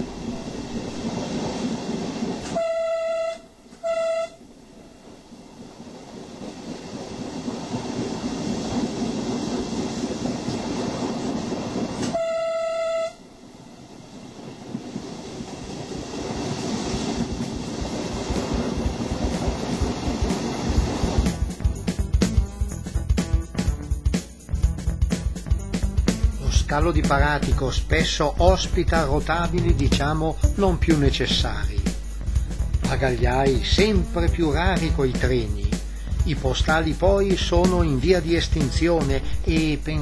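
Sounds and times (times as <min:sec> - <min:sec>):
diesel train running: 0:00.0 - 0:40.0
track and wind noise: 0:00.0 - 0:40.0
train horn blasts: 0:02.4 - 0:04.5, 0:12.1 - 0:13.3.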